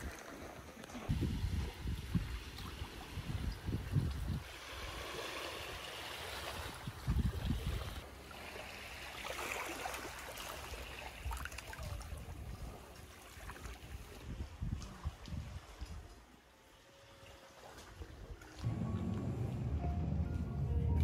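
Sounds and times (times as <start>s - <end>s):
small waves washing on shore: 0.0s - 19.3s
wind gusts on microphone: 1.0s - 8.0s, 13.6s - 16.2s.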